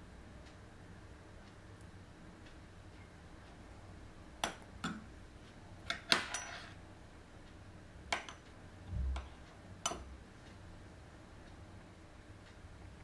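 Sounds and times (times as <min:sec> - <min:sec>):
cutlery clinking on a plate: 0:05.9 - 0:06.8.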